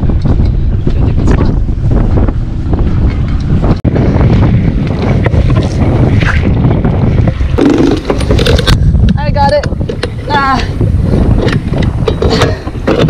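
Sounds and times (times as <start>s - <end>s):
sea water against hull: 0.0s - 13.0s
wind buffeting microphone: 0.0s - 13.0s
anchor chain rattling: 7.6s - 8.8s.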